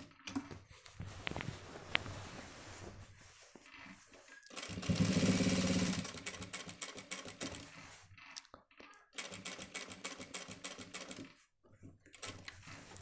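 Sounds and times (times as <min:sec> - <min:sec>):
sewing machine stitching: 0:04.4 - 0:08.0, 0:09.2 - 0:11.4.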